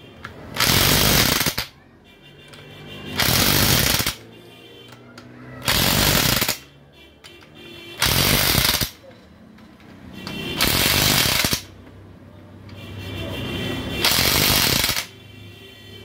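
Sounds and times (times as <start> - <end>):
impact wrench hammering on bolts: 3.2 - 4.2, 8.0 - 9.0, 10.3 - 11.7, 14.0 - 15.1.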